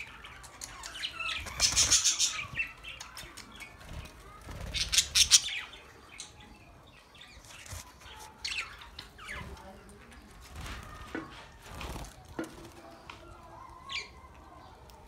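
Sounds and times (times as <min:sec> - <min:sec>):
budgerigars chattering and squawking: 0:00.0 - 0:03.8, 0:04.6 - 0:06.4
sharp bird calls: 0:00.0 - 0:06.4.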